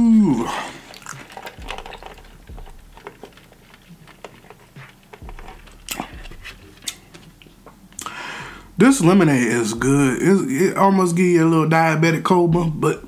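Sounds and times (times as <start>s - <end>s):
swallowing: 0.0s - 8.6s
sipping through a straw: 0.1s - 7.2s.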